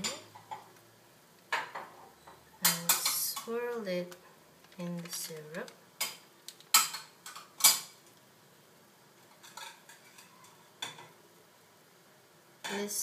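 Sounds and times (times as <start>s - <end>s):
kitchen clicks and knocks: 1.5s - 3.5s, 6.0s - 8.0s.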